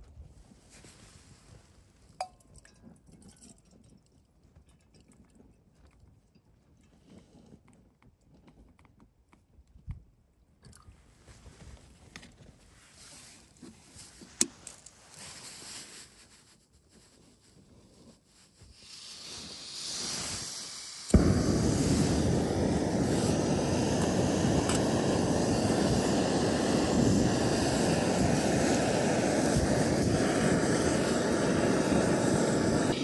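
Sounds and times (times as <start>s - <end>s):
wind buffeting microphone: 21.1s - 33.0s.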